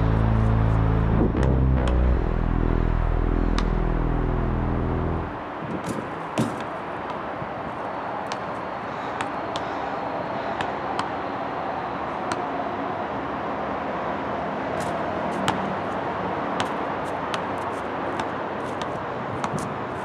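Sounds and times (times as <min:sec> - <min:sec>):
wind noise on microphone: 0:00.0 - 0:01.8, 0:05.1 - 0:06.5
basketball bouncing on asphalt: 0:05.8 - 0:07.3, 0:08.2 - 0:11.2, 0:14.8 - 0:20.0.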